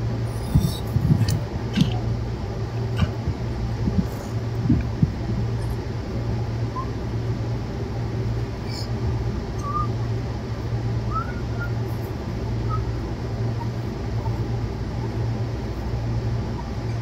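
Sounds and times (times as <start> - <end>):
low outdoor rumble: 0.0 - 17.0
faint bird chirps: 9.6 - 10.0.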